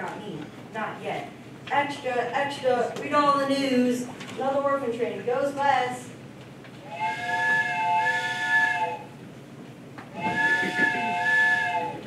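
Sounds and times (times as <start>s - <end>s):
steam train whistle: 6.8s - 9.2s, 10.1s - 12.0s.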